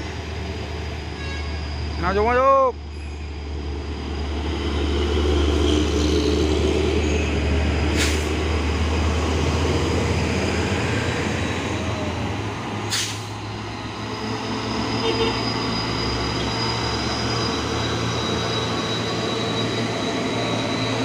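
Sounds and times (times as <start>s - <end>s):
diesel truck engine rumble: 3.4s - 18.7s
short sharp hisses: 7.9s - 8.3s, 12.9s - 13.3s.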